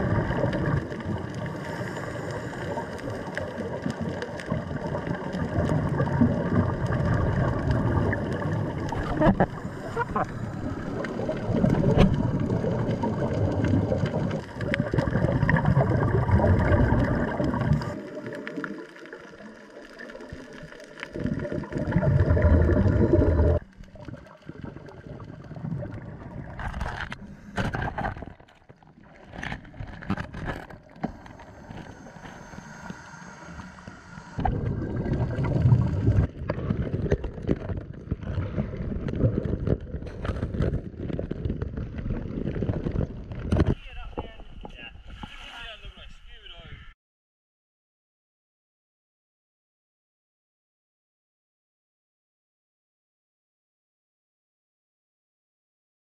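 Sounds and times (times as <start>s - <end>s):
diver exhaling bubbles: 0.0s - 43.7s.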